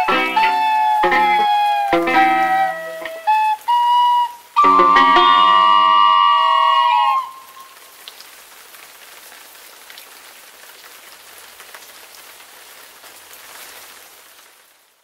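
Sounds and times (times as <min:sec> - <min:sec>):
rain drop ticks: 0:00.0 - 0:05.6, 0:06.8 - 0:13.7
flute note: 0:00.0 - 0:07.8
steady rain hiss: 0:00.0 - 0:15.0.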